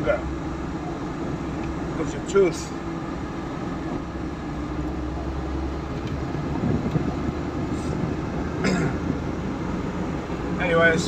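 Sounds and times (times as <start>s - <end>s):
van engine and road noise: 0.0s - 11.0s.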